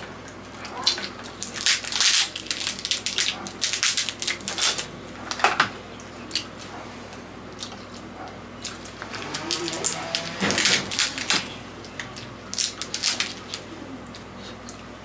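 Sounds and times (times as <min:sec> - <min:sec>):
crab shell crackling and snapping: 0:00.3 - 0:05.5, 0:10.6 - 0:14.8.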